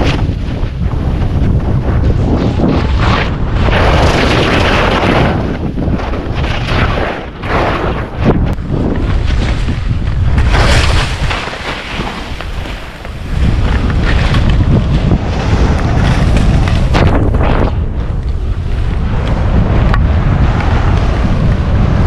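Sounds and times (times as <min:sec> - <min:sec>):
wind buffeting microphone: 0:00.0 - 0:22.0
skis hissing through snow: 0:10.4 - 0:13.4.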